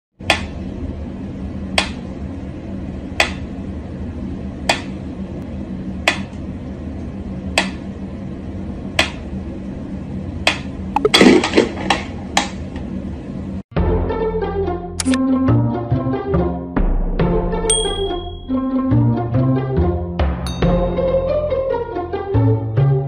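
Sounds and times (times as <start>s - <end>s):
steady low hum: 0.2s - 13.6s
metronome ticking: 17.7s - 18.7s.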